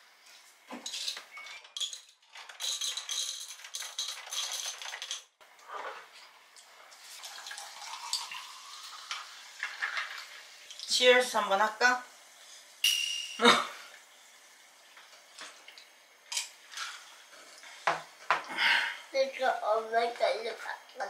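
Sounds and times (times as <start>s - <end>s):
sparkling water pouring into glass: 6.6s - 11.3s, 12.7s - 17.7s.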